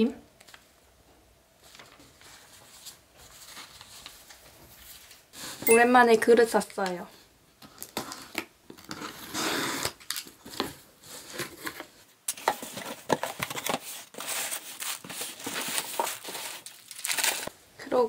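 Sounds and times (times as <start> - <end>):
paper packing rustling: 1.6 - 5.2, 8.8 - 17.5
packing tape being cut: 9.0 - 10.3.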